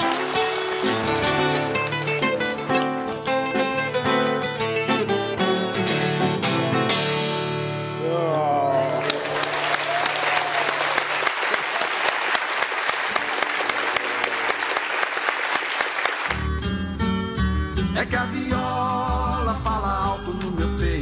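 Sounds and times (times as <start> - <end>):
audience applause: 0.0 - 2.6, 8.6 - 16.4.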